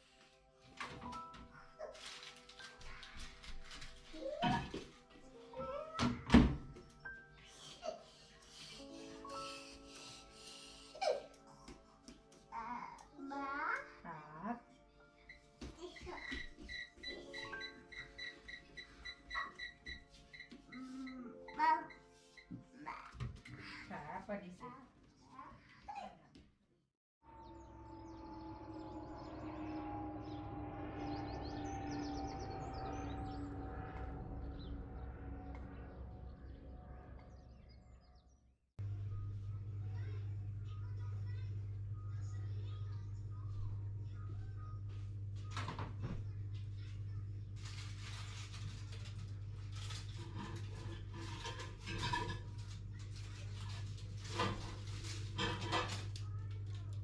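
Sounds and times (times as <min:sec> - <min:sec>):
items clattering in cupboard: 0:00.7 - 0:07.0, 0:47.5 - 0:57.0
birds chirping and singing: 0:15.0 - 0:22.6, 0:27.3 - 0:38.4
steady drone: 0:27.2 - 0:38.0
steady low hum: 0:27.3 - 0:38.0, 0:38.8 - 0:57.0
low rumble: 0:27.3 - 0:55.2.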